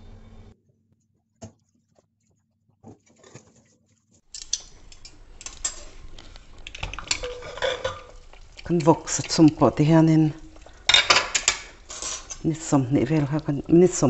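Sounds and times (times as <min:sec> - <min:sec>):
metallic clicks and knocks: 0:04.3 - 0:05.8.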